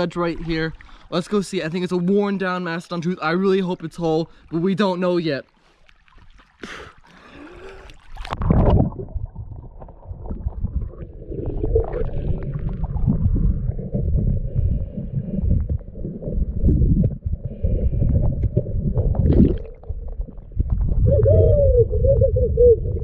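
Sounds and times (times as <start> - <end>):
muffled underwater rumbling: 7.5 - 23.0.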